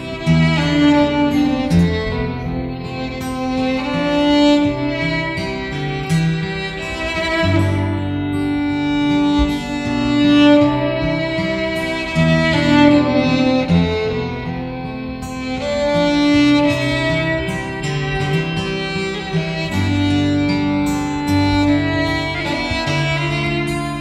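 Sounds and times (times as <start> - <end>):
strummed acoustic guitar: 0.0 - 24.0
violin playing slow melody: 0.0 - 24.0.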